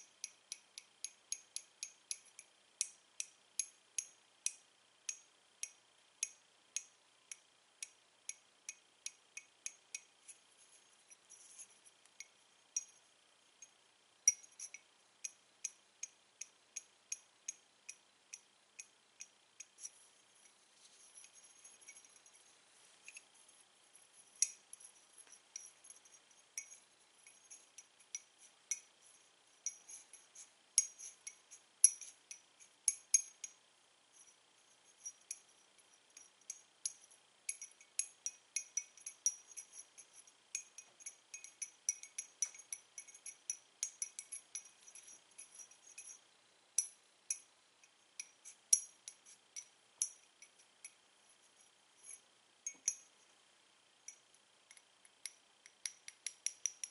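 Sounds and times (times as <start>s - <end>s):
chalk sticks clicking together: 54.7s - 56.9s.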